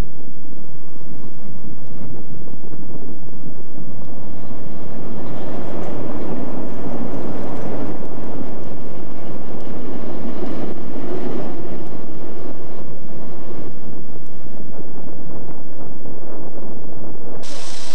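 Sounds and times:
wind on microphone: 0:00.0 - 0:17.9
diesel locomotive running: 0:04.2 - 0:14.8, 0:17.4 - 0:17.9.

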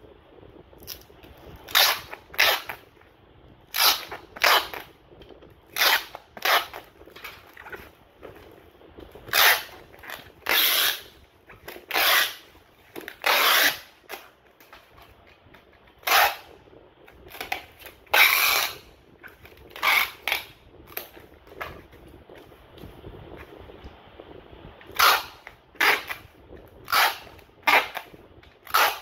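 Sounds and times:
packing tape pulled off roll: 0:00.8 - 0:02.9, 0:03.7 - 0:22.6, 0:24.8 - 0:29.0
foam wrap rustling: 0:03.7 - 0:29.0.

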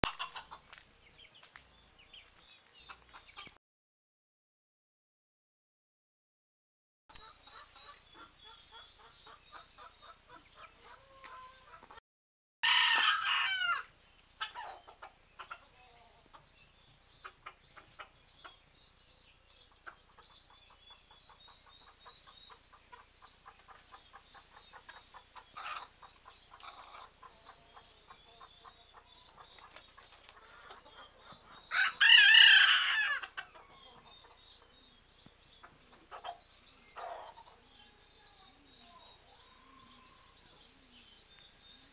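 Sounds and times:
soft clucking: 0:00.0 - 0:00.7
birds chirping: 0:00.1 - 0:03.6, 0:07.1 - 0:12.0, 0:13.0 - 0:41.9
hen crowing: 0:12.6 - 0:13.9, 0:31.7 - 0:33.3.

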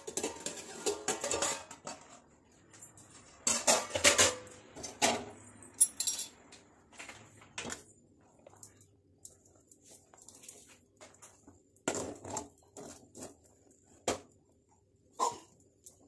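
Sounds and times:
metal pot and lid clattering: 0:00.0 - 0:02.3, 0:03.3 - 0:06.4, 0:15.1 - 0:15.5.

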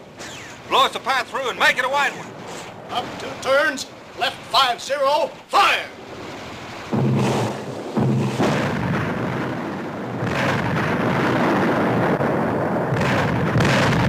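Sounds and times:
rumble of blasts: 0:00.0 - 0:14.0
shells exploding: 0:06.8 - 0:14.0
mortar firing: 0:06.9 - 0:12.0, 0:12.9 - 0:14.0.

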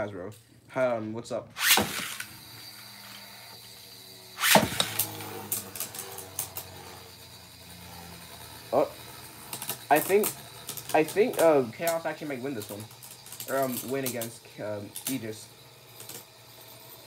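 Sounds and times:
spinning tops whirring: 0:01.5 - 0:17.0
launcher ripping: 0:01.6 - 0:03.2, 0:04.4 - 0:06.8.

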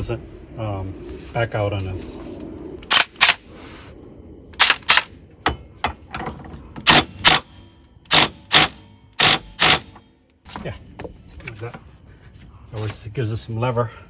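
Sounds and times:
cordless driver bursts: 0:08.1 - 0:09.9.

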